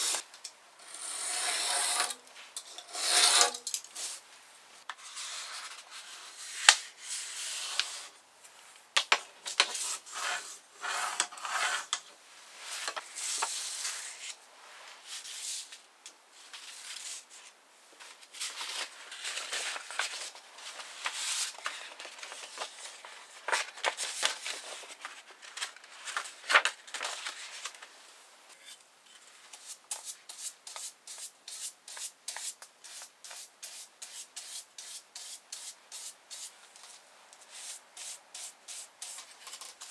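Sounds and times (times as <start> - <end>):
paper rustling and folding: 16.4 - 28.0
brush spreading paste on paper: 29.5 - 39.3.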